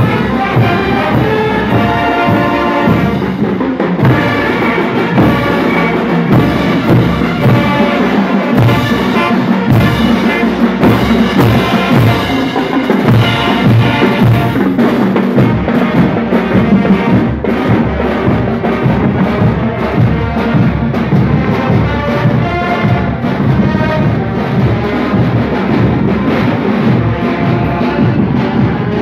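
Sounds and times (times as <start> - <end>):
brass playing a melody: 0.0 - 29.0
snare and bass drums: 0.0 - 29.0.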